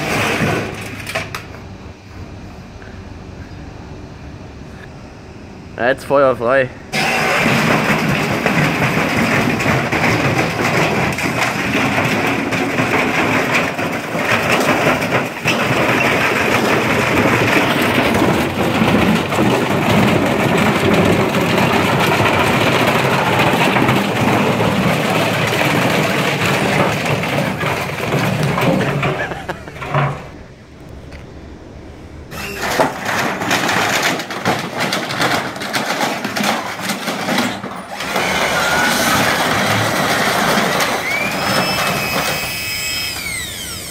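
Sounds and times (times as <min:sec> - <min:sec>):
heavy machinery running: 0:00.0 - 0:04.6, 0:05.5 - 0:43.9
short rising whine: 0:37.9 - 0:43.9.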